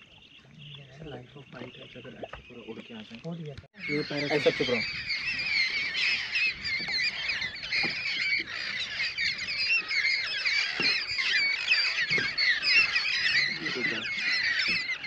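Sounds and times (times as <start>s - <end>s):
flock of parrots squawking: 3.8s - 15.0s.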